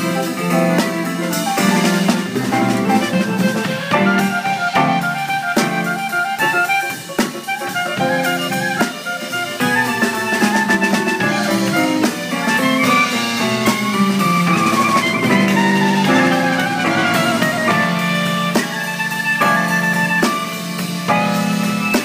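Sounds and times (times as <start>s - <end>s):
clarinet jazz solo: 0.0s - 22.0s
drums: 0.0s - 22.0s
electric keyboard chords: 0.0s - 22.0s.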